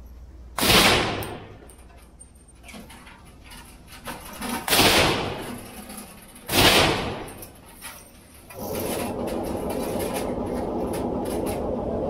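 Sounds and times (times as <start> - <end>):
gunshots echoing indoors: 0.6 - 1.8, 4.6 - 5.6, 6.5 - 7.5.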